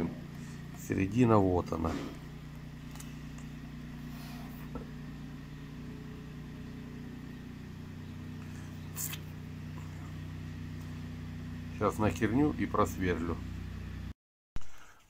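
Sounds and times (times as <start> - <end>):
low mechanical hum: 0.0 - 15.0
brief scrape: 4.1 - 4.7.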